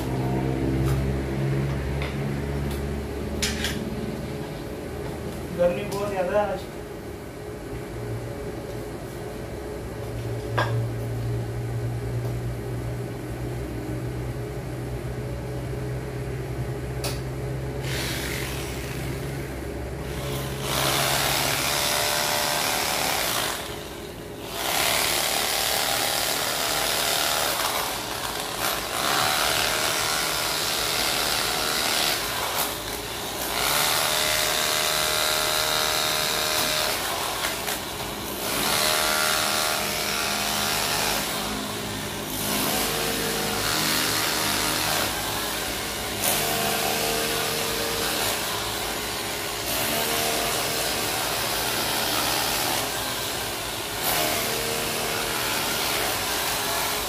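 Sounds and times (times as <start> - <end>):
electric power tool on road: 17.8 - 57.0.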